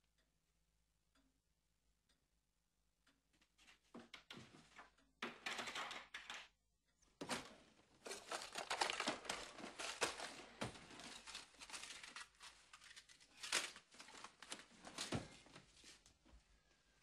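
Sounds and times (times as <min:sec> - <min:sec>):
crinkling and rustling: 0:07.2 - 0:17.0.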